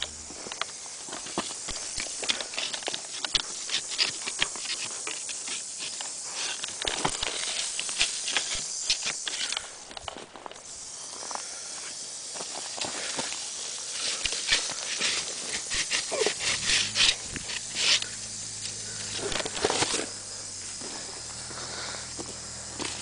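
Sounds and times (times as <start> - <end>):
footsteps crunching twigs: 0.0 - 23.0
rattlesnake rattling: 0.0 - 23.0.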